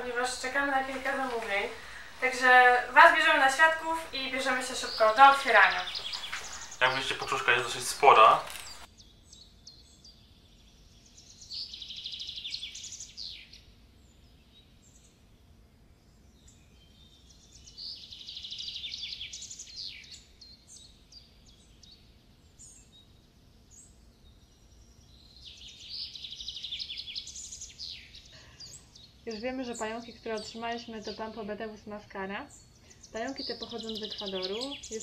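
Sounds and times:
songbird trilling: 0:00.0 - 0:08.9, 0:32.5 - 0:35.0
bird chirps: 0:00.0 - 0:09.9, 0:32.5 - 0:35.0.

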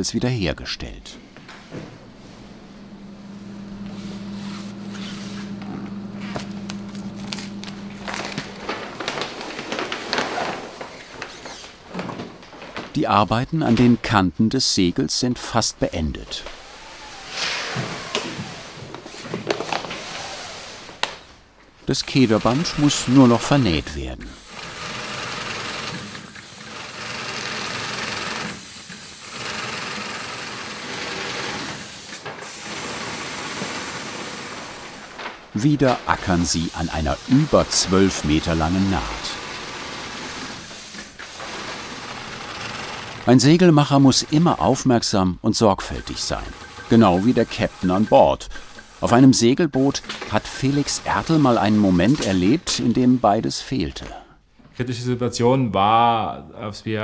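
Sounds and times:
low hum: 0:01.2 - 0:09.3
industrial sewing machine running: 0:02.8 - 0:10.8, 0:16.6 - 0:19.2, 0:22.0 - 0:35.1, 0:36.3 - 0:44.8, 0:46.0 - 0:49.1, 0:49.8 - 0:52.6
sailcloth rustling and crinkling: 0:06.2 - 0:12.9.

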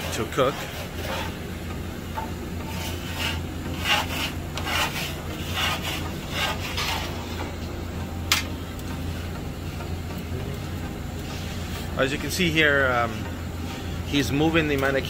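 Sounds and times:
metal peel scraping oven floor: 0:00.0 - 0:01.6, 0:02.2 - 0:07.6
steady low hum: 0:00.0 - 0:15.0.

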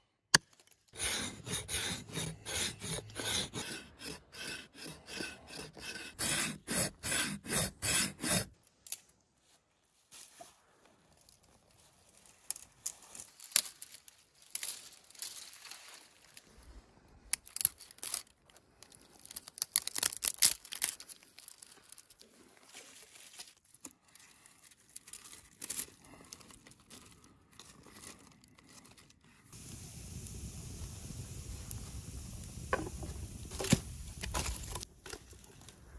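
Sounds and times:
twigs snapping: 0:12.5 - 0:15.8, 0:17.3 - 0:22.1
wood fire crackling: 0:29.6 - 0:35.9.

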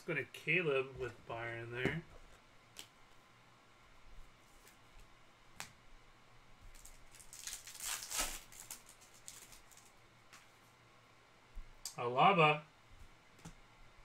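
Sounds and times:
plastic card sleeves rustling: 0:06.7 - 0:10.0.

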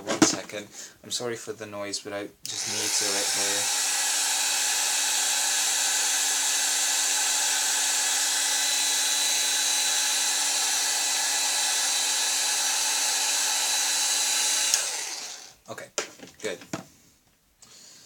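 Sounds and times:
hair dryer running: 0:02.5 - 0:15.6.

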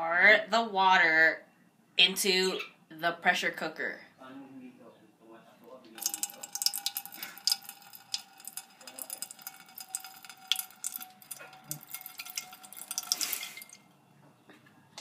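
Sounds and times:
water splashing into metal pot: 0:06.0 - 0:13.9.

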